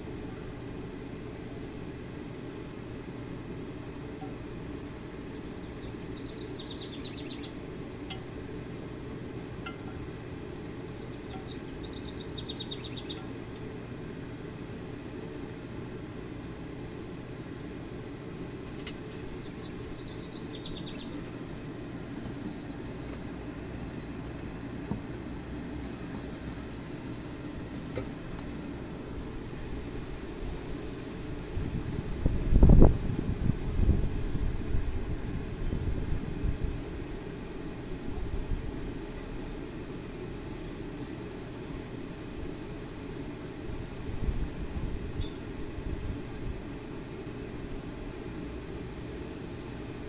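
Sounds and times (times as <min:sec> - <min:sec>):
forge blower humming: 0:00.0 - 0:50.0
bird trilling: 0:05.4 - 0:07.6, 0:10.8 - 0:13.4, 0:19.3 - 0:21.2.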